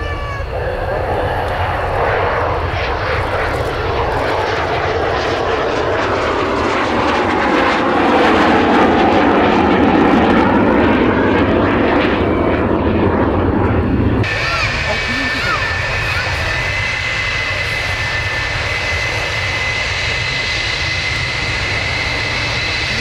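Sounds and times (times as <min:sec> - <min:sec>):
jet engine rushing: 0:00.0 - 0:23.0.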